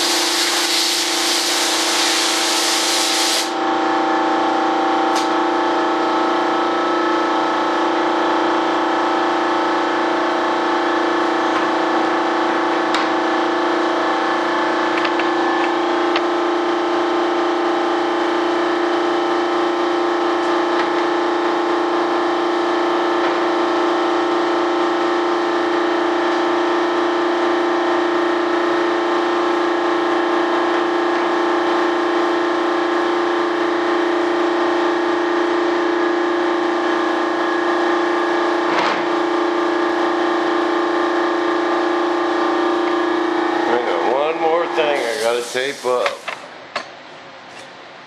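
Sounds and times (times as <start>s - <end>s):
steady machine drone: 0.0s - 46.9s.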